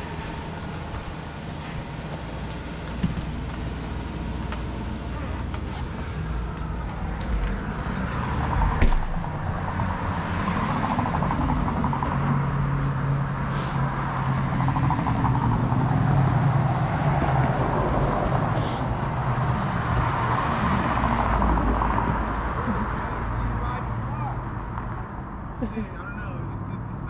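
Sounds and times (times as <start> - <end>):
vehicle engine running: 0.0 - 13.9.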